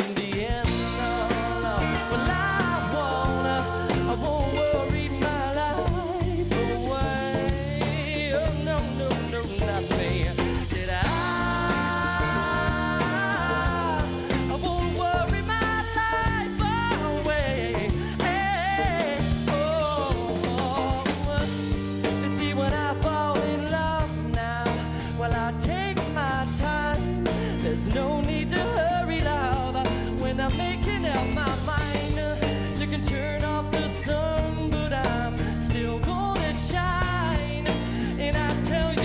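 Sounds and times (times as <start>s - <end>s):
bass guitar: 0.0s - 39.0s
drum kit: 0.0s - 39.0s.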